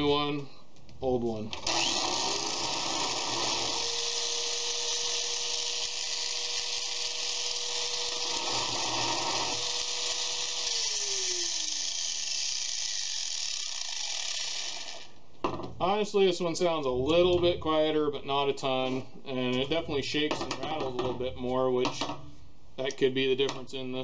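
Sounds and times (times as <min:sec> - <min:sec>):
angle grinders whining: 0:01.6 - 0:15.2
grinder winding down: 0:01.6 - 0:15.2.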